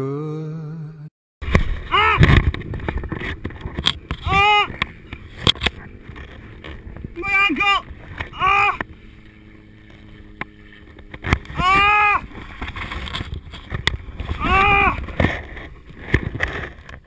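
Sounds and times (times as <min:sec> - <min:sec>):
wind rumble on microphone: 0:01.4 - 0:17.0
man yelling in pain: 0:04.3 - 0:04.7, 0:08.4 - 0:08.8, 0:11.6 - 0:12.2, 0:14.4 - 0:15.0.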